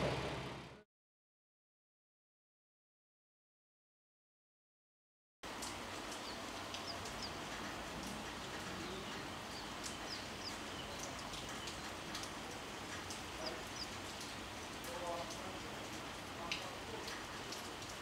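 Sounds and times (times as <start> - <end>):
steady outdoor hiss: 5.5 - 18.0
small birds chirping: 5.6 - 18.0.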